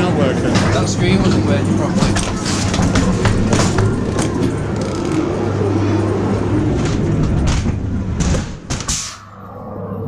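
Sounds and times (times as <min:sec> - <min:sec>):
ride car rumbling on track: 0:00.0 - 0:08.7.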